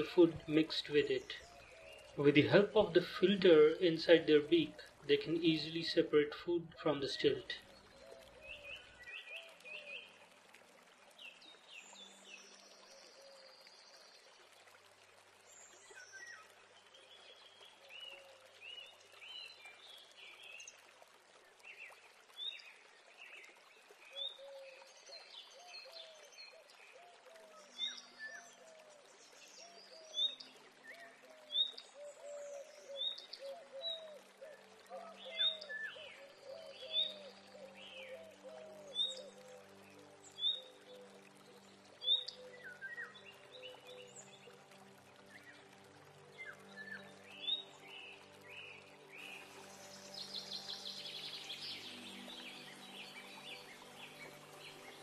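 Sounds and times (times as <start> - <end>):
lower repeated bird calls: 31.0 - 44.3.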